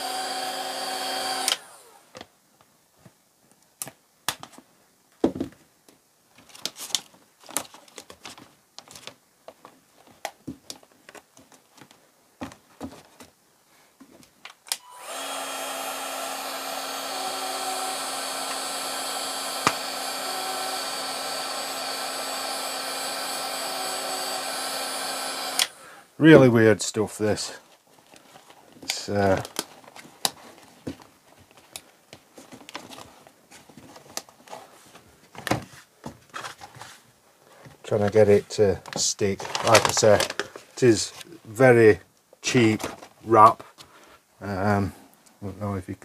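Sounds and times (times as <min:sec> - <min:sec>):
heat gun blowing: 0:00.0 - 0:02.1, 0:14.7 - 0:26.2.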